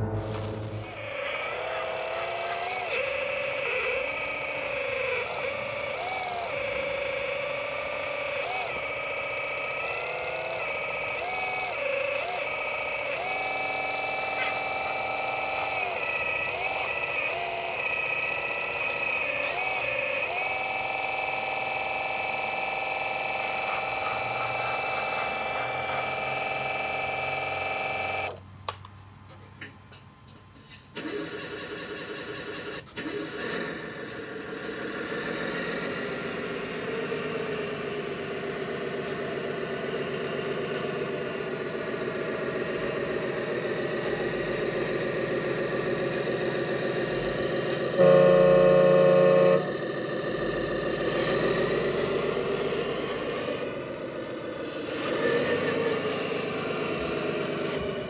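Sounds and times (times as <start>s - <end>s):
hydraulic pump whining: 0.0s - 28.4s, 31.0s - 58.0s.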